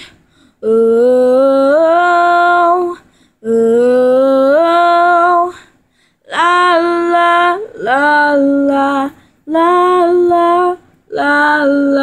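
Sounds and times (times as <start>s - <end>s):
breath: 0.0s - 0.6s, 3.0s - 3.4s, 5.6s - 6.2s
girl singing without words: 0.0s - 12.0s.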